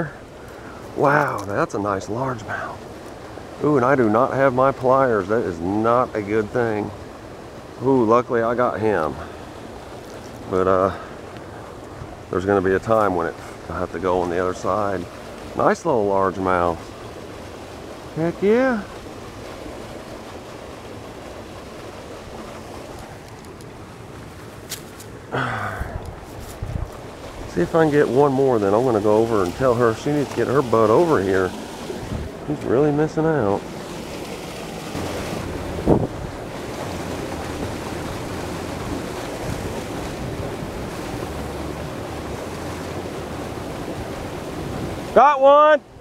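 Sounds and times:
water rushing over spillway: 0.0 - 46.0
wind rumble on microphone: 25.6 - 45.1.

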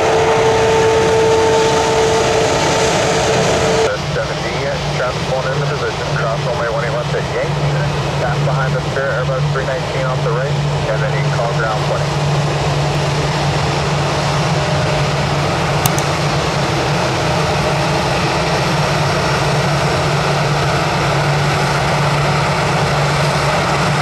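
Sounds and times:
brief click: 15.8 - 16.1.

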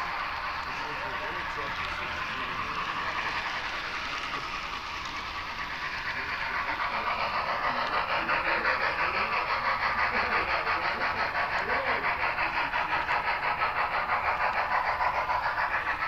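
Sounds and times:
model train running: 0.0 - 16.0
pulsing rhythmic beats: 0.0 - 16.0.

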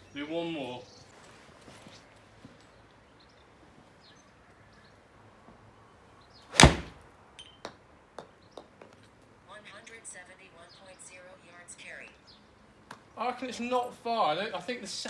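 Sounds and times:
golf club striking ball: 6.5 - 7.6.

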